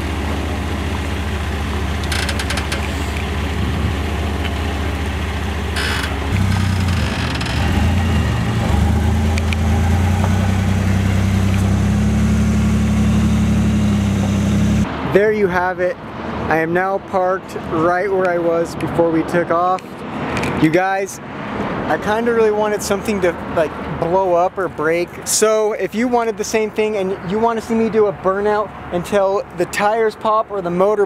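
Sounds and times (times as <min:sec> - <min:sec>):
trailer rattles: 0:00.0 - 0:12.1
truck engine under load: 0:00.0 - 0:14.9.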